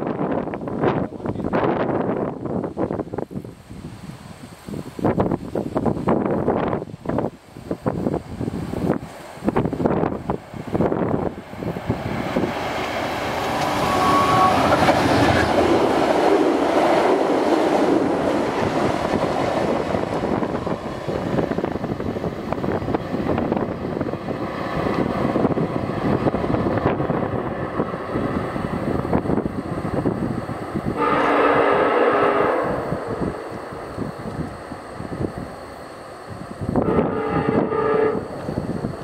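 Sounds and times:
diesel locomotive engine: 0:00.0 - 0:39.0
train wheels clattering on rails: 0:09.0 - 0:27.8
locomotive horn: 0:13.4 - 0:15.4, 0:30.9 - 0:33.8, 0:36.8 - 0:38.6.

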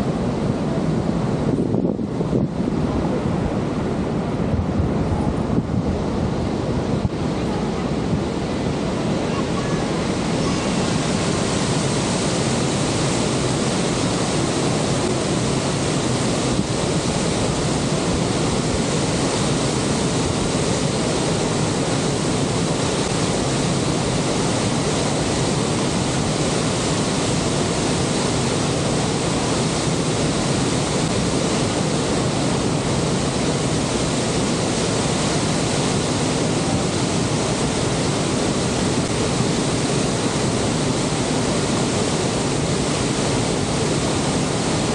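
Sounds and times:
waterfall rushing: 0:00.0 - 0:44.9.

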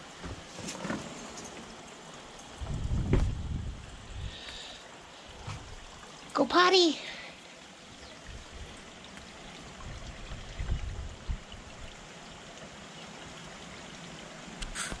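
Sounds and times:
rushing outdoor noise: 0:00.0 - 0:07.4
low rumbles: 0:02.6 - 0:04.4.

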